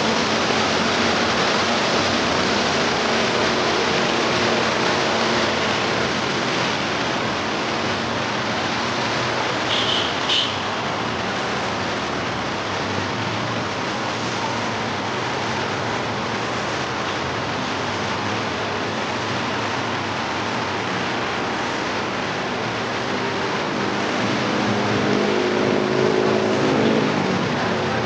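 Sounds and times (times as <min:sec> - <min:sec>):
distant traffic: 0:00.0 - 0:28.0
vehicle engine: 0:10.6 - 0:28.0.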